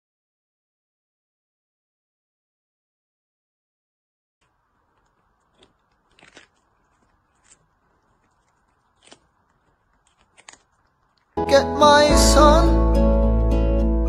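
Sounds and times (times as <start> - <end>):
kitten crunching cucumber: 4.4 - 11.4.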